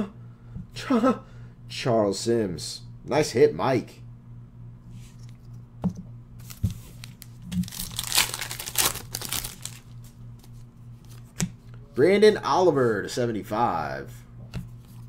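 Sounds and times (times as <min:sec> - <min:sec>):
foil wrapper tearing and crinkling: 0:06.4 - 0:10.1.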